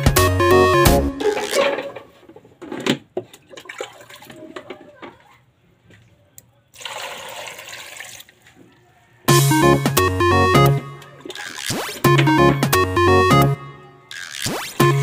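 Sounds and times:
loud electronic music: 0.0 - 1.6, 9.3 - 15.0.

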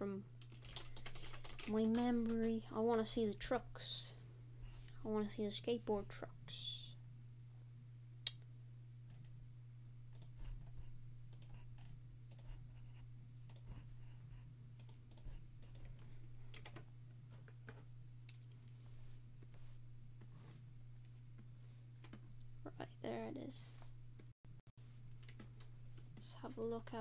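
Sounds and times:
low electrical hum: 0.0 - 27.0
computer keyboard typing: 0.4 - 2.6, 10.1 - 12.6, 13.5 - 13.8, 14.8 - 16.8, 22.0 - 22.2, 25.2 - 25.7.

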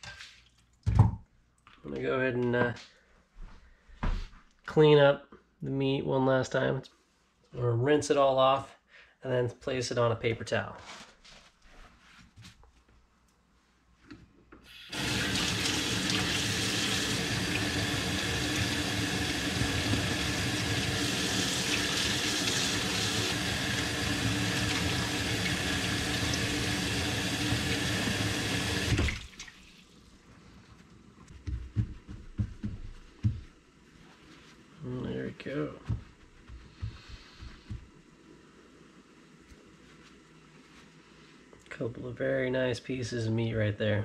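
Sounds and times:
faucet running into a metal sink: 14.9 - 29.8.

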